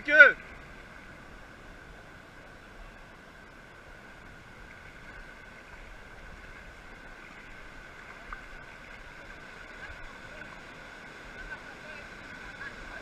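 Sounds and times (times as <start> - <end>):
shallow surf washing: 0.0 - 13.0.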